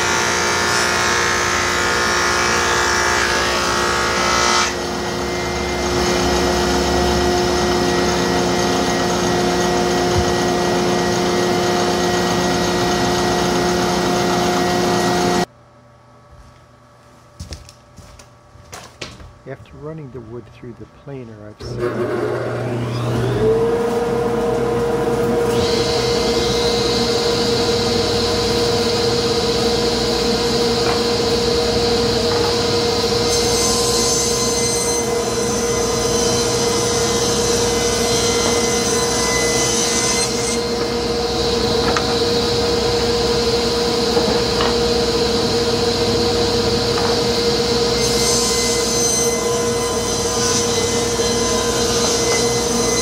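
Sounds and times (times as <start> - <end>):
table saw humming: 0.0 - 15.5, 19.6 - 53.0.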